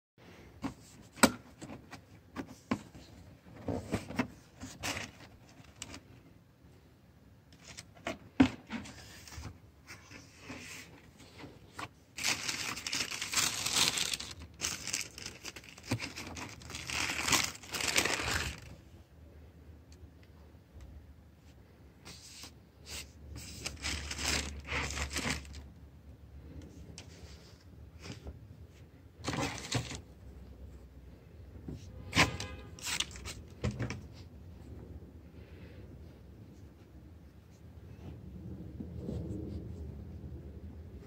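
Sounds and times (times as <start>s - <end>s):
tissue paper rustling: 10.0s - 18.8s, 22.1s - 25.6s.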